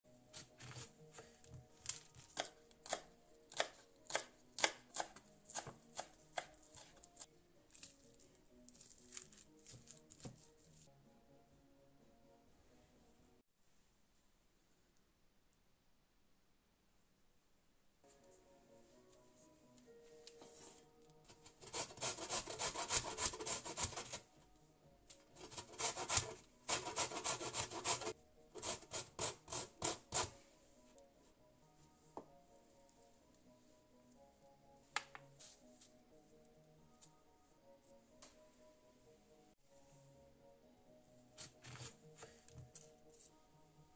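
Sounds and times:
knife chopping on wooden board: 0:01.8 - 0:06.9
grating on a metal grater: 0:21.5 - 0:24.2, 0:25.4 - 0:30.3.

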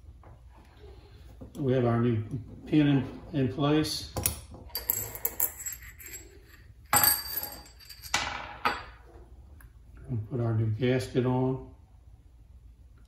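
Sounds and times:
metal parts clinking on workbench: 0:04.2 - 0:08.9.

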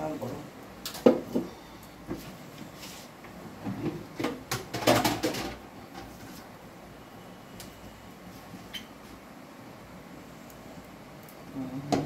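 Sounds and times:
sharp knocks and clatters: 0:03.6 - 0:06.1.

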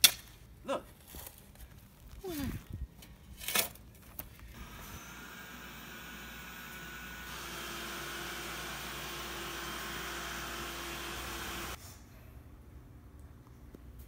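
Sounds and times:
robot vacuum running: 0:04.6 - 0:11.8.

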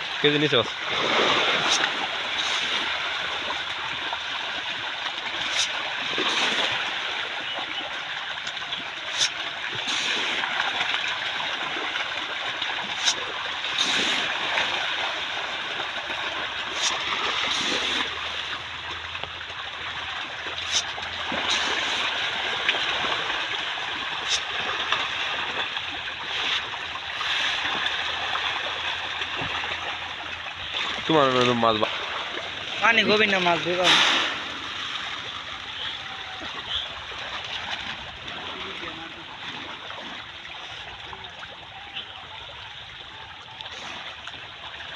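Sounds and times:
fish splashing at water surface: 0:00.0 - 0:44.9.

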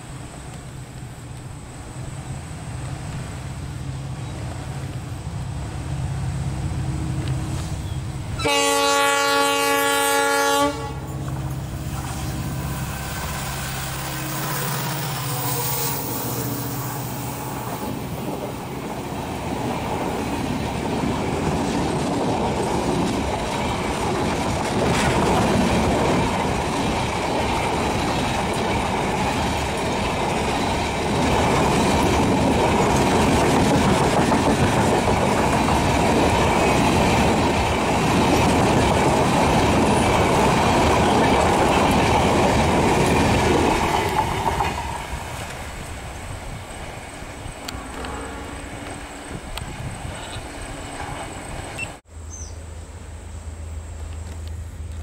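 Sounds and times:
diesel locomotive engine running: 0:00.0 - 0:52.1
train wheels on rails: 0:00.0 - 0:52.1
train horn: 0:07.5 - 0:11.2, 0:12.6 - 0:18.1, 0:47.6 - 0:49.6.

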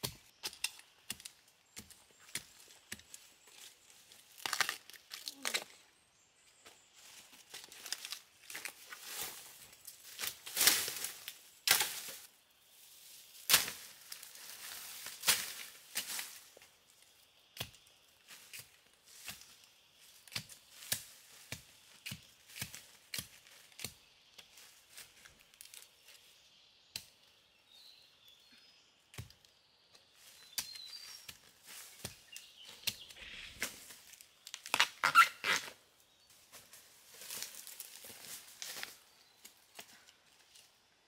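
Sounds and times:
dry leaves and twigs crackling: 0:00.0 - 0:41.0
digging tool chopping into soil: 0:20.3 - 0:24.0, 0:29.1 - 0:29.4
rustling in leaf litter: 0:36.6 - 0:39.2.

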